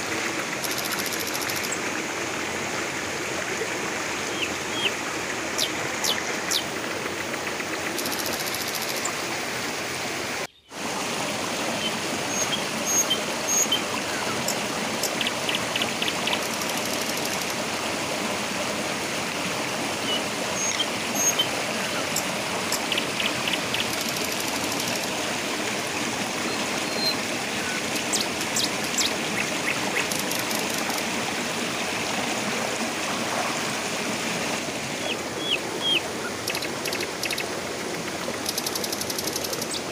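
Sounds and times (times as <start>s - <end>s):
river rushing over rocks: 8.9s - 38.5s.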